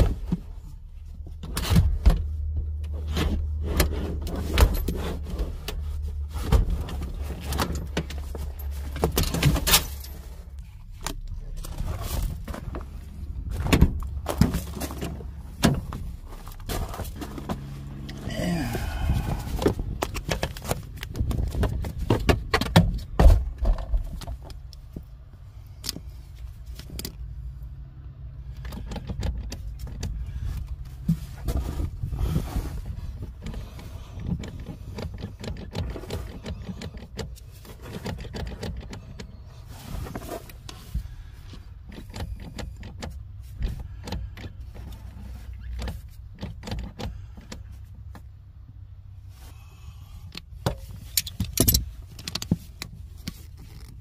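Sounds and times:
low rumble: 0:02.2 - 0:22.3.

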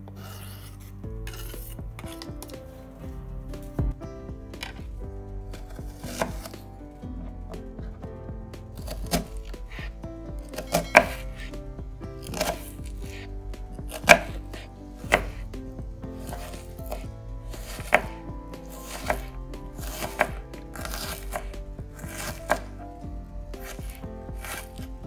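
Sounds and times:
crunching cuts through onion: 0:12.2 - 0:13.3, 0:18.8 - 0:22.7, 0:23.6 - 0:24.8.

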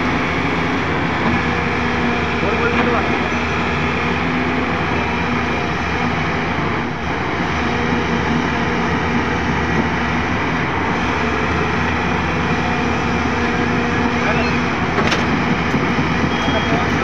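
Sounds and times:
excavator diesel engine droning: 0:00.0 - 0:17.0.

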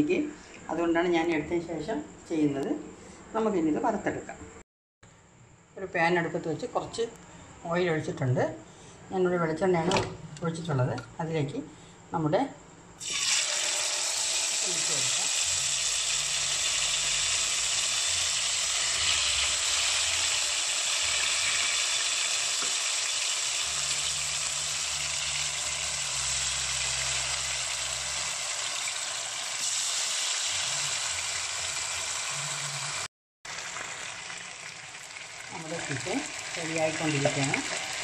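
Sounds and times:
chicken sizzling in oil: 0:13.0 - 0:38.0.

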